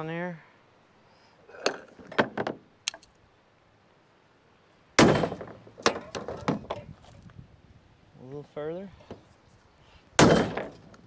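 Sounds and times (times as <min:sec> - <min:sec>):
metal knocks: 0:01.7 - 0:02.6, 0:05.0 - 0:06.9, 0:10.2 - 0:10.9.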